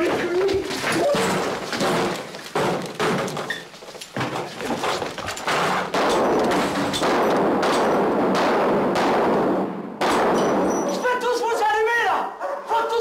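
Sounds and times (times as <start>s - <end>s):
gunshots with echo: 5.4s - 11.0s.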